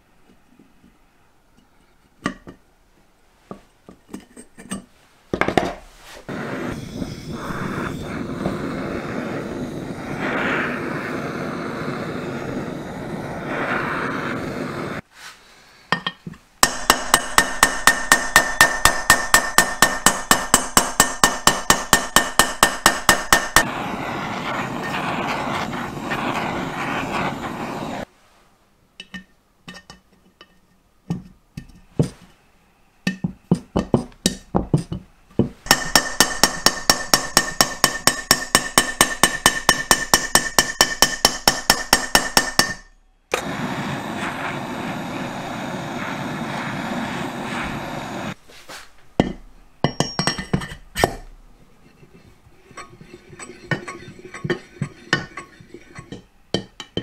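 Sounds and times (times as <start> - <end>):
metal rasping: 49.2 - 57.0.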